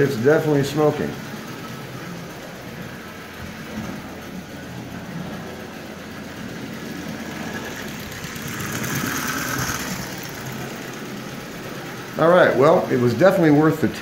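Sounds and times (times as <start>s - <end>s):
wheels rumbling on metal track: 0.0s - 14.0s
toy train motor whirring: 5.9s - 13.3s.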